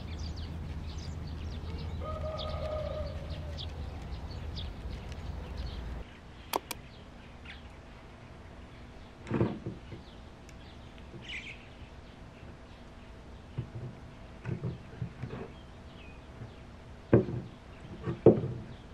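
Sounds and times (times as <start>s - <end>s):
low wind rumble: 0.0s - 18.0s
birds chirping: 0.0s - 18.9s
sharp clicks: 6.5s - 6.8s.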